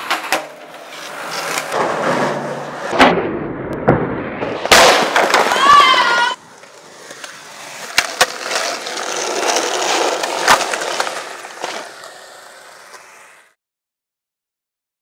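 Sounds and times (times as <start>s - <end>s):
skateboard clacks: 0.0s - 3.1s, 4.6s - 13.5s
skateboard impact: 0.0s - 13.6s
skateboard wheels rolling on concrete: 0.0s - 13.6s.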